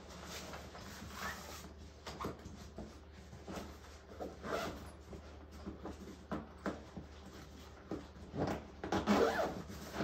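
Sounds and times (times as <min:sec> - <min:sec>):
bag being zipped: 0:09.1 - 0:10.0.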